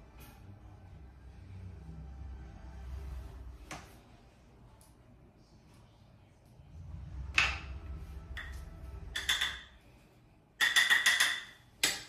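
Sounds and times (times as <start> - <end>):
low rumble: 0.0 - 9.2
makeup cases clicking and clacking: 9.2 - 9.7, 10.6 - 12.0.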